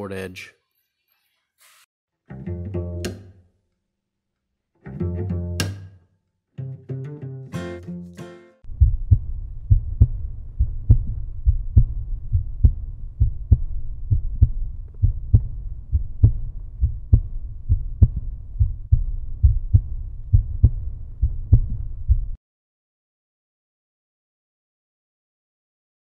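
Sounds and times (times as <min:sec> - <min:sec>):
deep thumping heartbeat pulse: 0:08.6 - 0:22.4.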